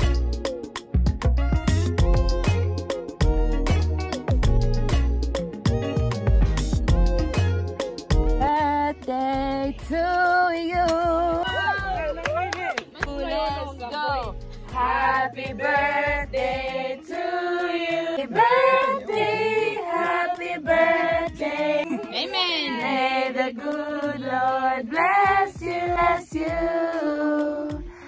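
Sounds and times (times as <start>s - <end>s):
women singing together: 8.4s - 12.2s, 14.7s - 28.0s.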